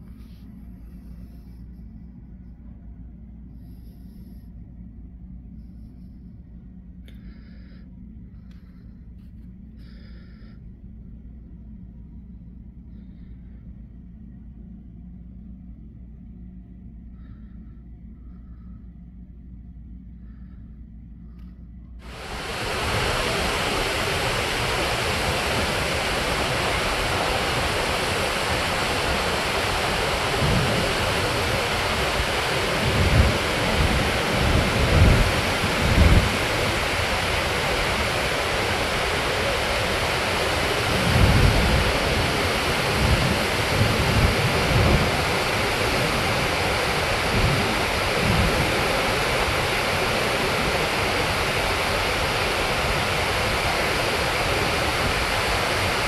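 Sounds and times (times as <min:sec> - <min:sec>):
waterfall rushing: 0:22.0 - 0:56.0
wind buffeting microphone: 0:22.0 - 0:56.0.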